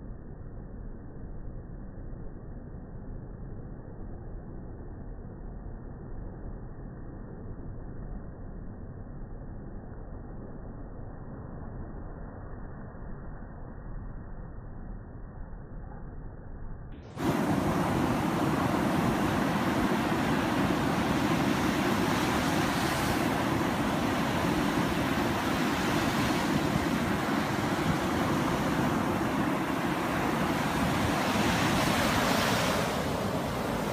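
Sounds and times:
surf breaking on sand: 0:17.1 - 0:33.9
wind on microphone: 0:17.1 - 0:33.9.

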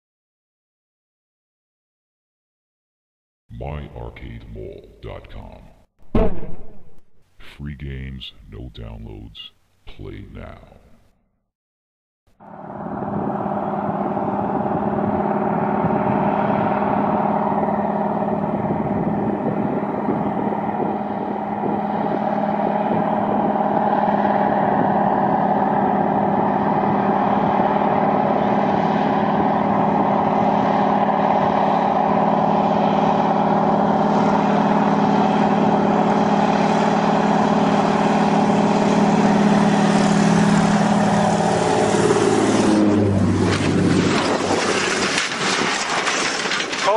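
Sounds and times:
propeller plane engine droning: 0:12.3 - 0:46.9.

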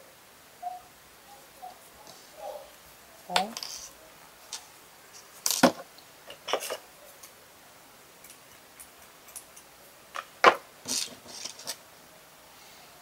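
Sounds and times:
hands handling craft pieces: 0:08.2 - 0:11.8.

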